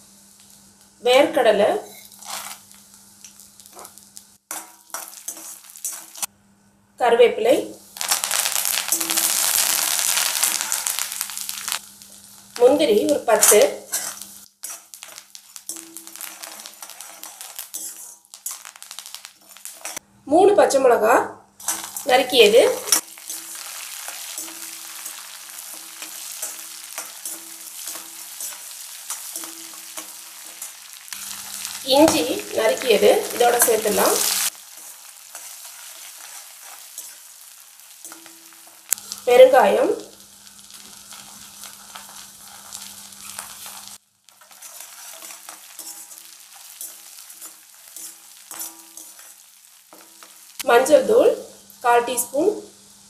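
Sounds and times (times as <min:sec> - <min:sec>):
food sizzling in hot oil: 0:00.0 - 0:20.0, 0:21.6 - 0:53.0
spoon stirring: 0:04.5 - 0:06.2, 0:13.9 - 0:18.8, 0:21.6 - 0:37.3, 0:41.1 - 0:50.4.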